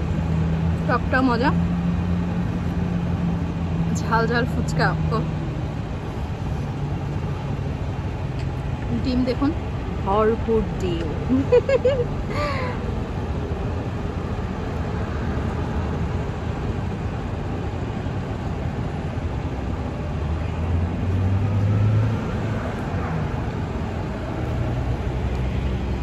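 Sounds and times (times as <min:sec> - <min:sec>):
road traffic noise: 0:00.0 - 0:26.0
vehicle passing: 0:18.9 - 0:26.0.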